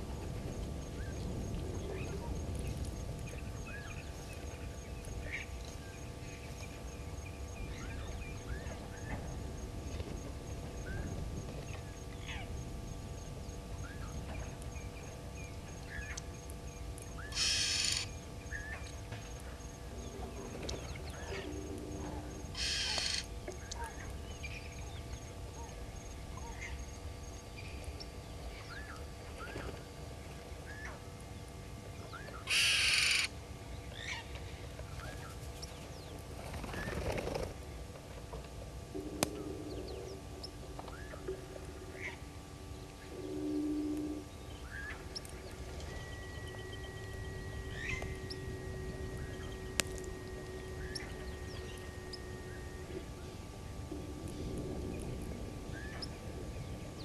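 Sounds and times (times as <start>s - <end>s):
bird calls and chirps: 17.1s - 29.8s, 42.8s - 53.4s, 55.7s - 57.0s.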